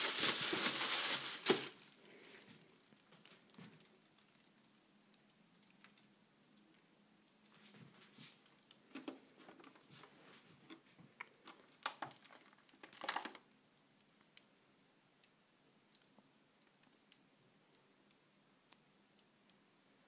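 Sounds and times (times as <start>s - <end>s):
faint handling rustles and clicks: 5.2s - 14.5s.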